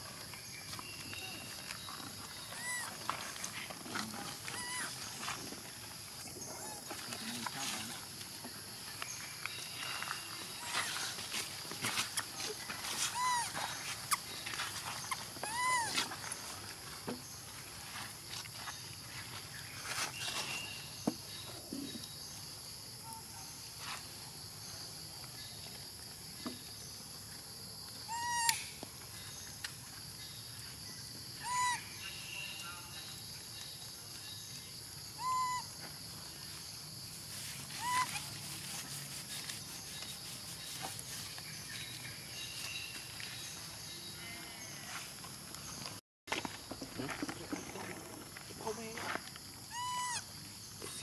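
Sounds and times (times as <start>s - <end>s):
short pitched animal calls: 31.4s - 31.8s, 35.2s - 35.7s, 37.7s - 38.3s, 49.7s - 50.3s.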